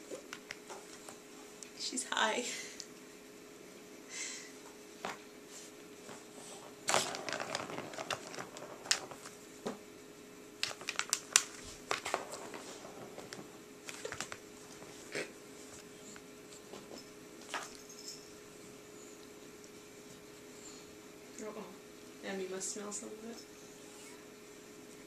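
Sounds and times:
paws clicking on plastic: 0:10.6 - 0:12.6
cat rustling against toy: 0:11.5 - 0:15.0.

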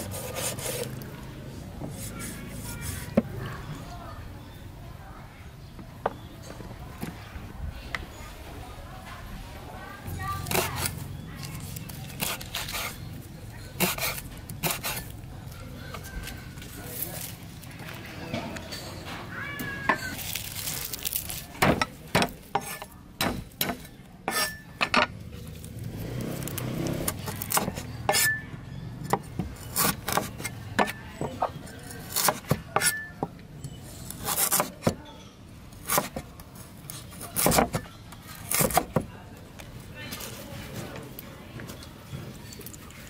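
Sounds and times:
cleaver chopping on wooden board: 0:21.6 - 0:25.0, 0:27.0 - 0:28.4, 0:29.0 - 0:31.5, 0:32.1 - 0:33.3, 0:35.8 - 0:36.2, 0:37.4 - 0:37.8, 0:38.5 - 0:39.1.

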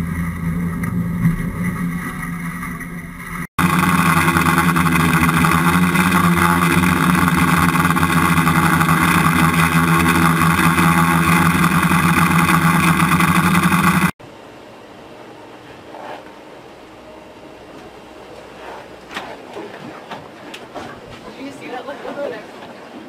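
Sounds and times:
drone propellers buzzing: 0:00.0 - 0:14.2.

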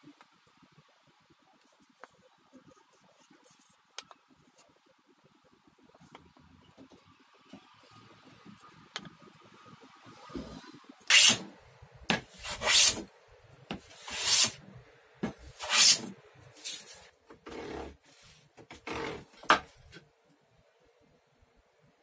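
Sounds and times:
hand saw cutting wood: 0:11.1 - 0:11.5, 0:12.3 - 0:13.0, 0:13.9 - 0:14.6, 0:15.6 - 0:16.1.

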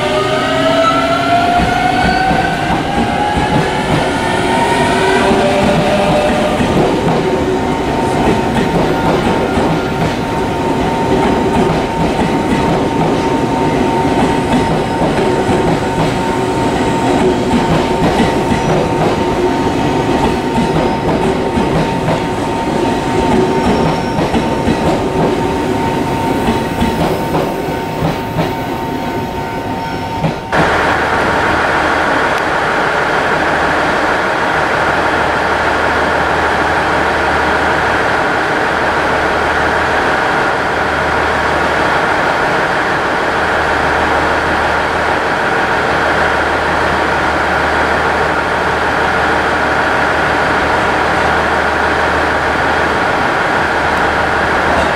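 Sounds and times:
train wheels rumbling and clattering: 0:00.0 - 0:54.9.

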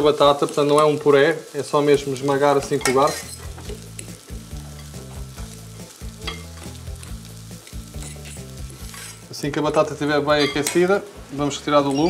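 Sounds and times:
oil sizzling: 0:00.0 - 0:12.0
fork scraping a metal pan: 0:08.0 - 0:09.3.

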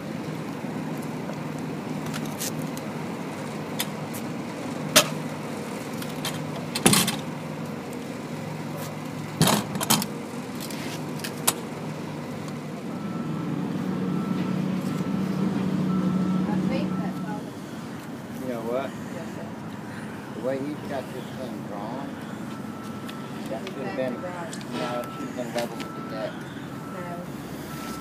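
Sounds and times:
low motor hum: 0:00.0 - 0:28.0
metallic clanks and rattles: 0:09.4 - 0:10.1.

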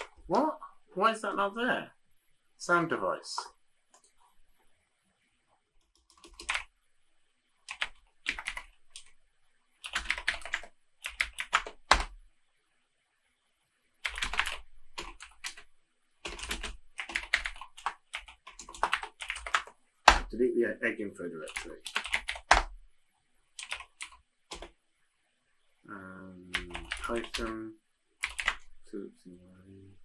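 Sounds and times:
typing on computer keyboard: 0:05.8 - 0:06.7, 0:07.7 - 0:09.1, 0:09.8 - 0:12.2, 0:14.0 - 0:20.3, 0:21.4 - 0:22.8, 0:23.6 - 0:24.7, 0:26.5 - 0:27.6, 0:28.2 - 0:28.7.

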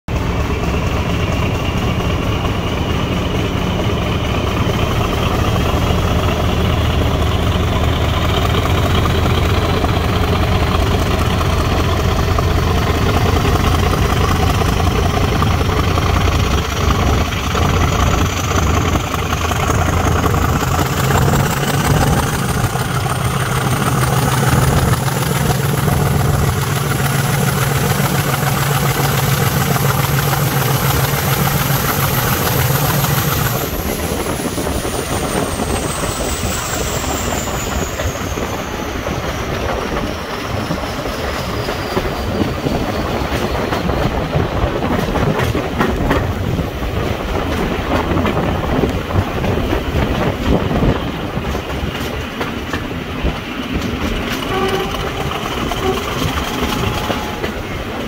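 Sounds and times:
diesel locomotive engine working hard: 0:00.0 - 0:58.0
rising whine: 0:01.1 - 0:42.3.

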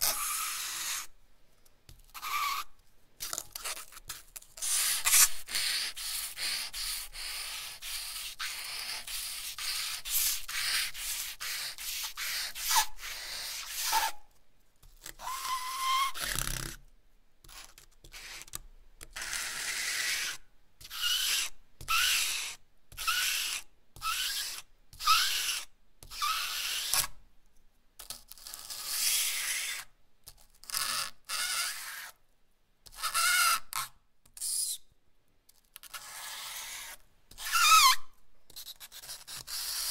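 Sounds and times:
charcoal scratching on paper: 0:00.0 - 0:01.2, 0:02.1 - 0:14.3, 0:17.4 - 0:27.1, 0:28.0 - 0:29.9, 0:30.6 - 0:32.2, 0:35.8 - 0:39.9.

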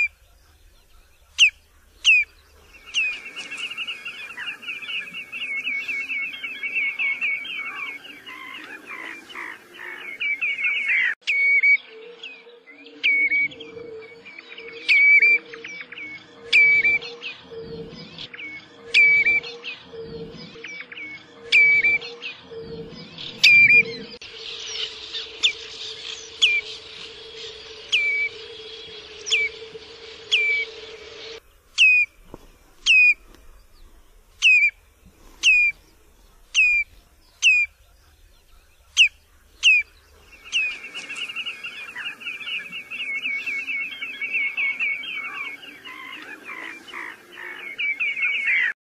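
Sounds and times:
rapid bird piping: 0:18.9 - 0:48.8
bird whistled calls: 0:36.5 - 0:37.8.

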